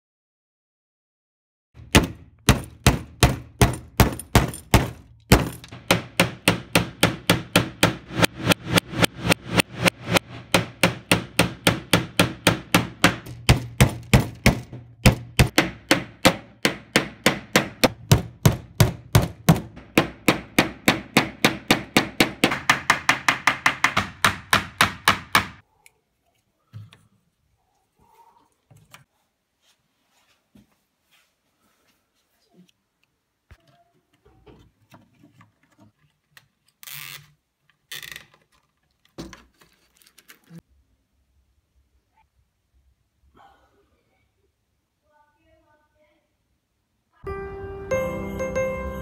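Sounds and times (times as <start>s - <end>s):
hammer nailing wooden planks: 1.8s - 25.6s.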